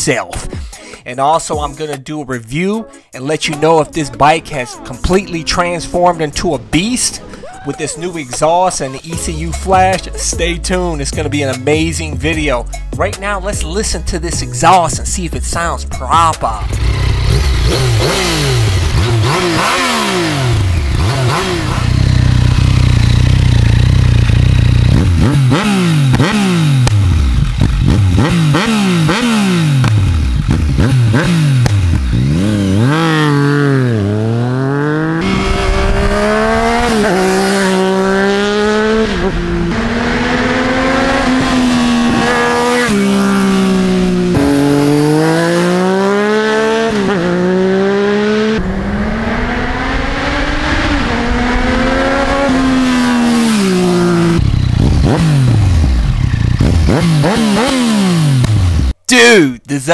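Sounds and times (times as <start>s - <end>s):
motorcycle accelerating: 14.9s - 59.0s
motorcycle engine revving: 16.2s - 59.0s.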